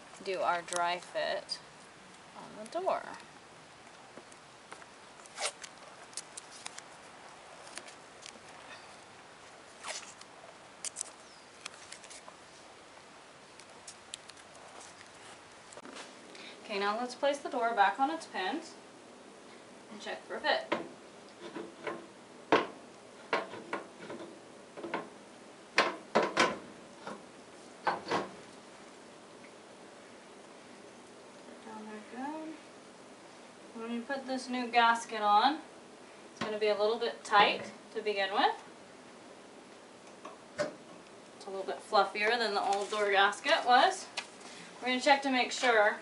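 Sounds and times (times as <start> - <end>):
light handling ticks: 3.9 - 9.0, 9.9 - 12.4
masking tape pulled and torn: 5.2 - 7.0, 9.8 - 12.3.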